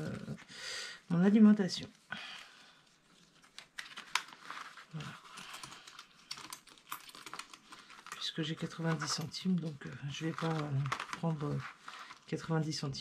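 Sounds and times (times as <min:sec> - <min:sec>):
plastic crinkling: 0:01.1 - 0:13.0
small irregular clicks: 0:05.2 - 0:08.2.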